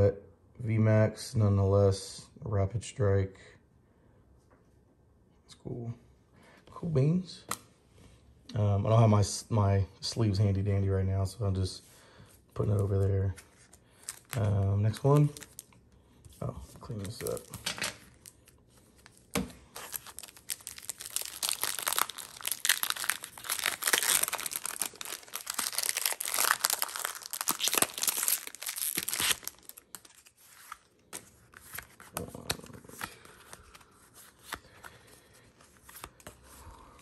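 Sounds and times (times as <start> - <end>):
cards rustling and clicking: 12.6 - 36.6
foil wrapper crinkling and tearing: 14.0 - 15.7, 16.9 - 31.1.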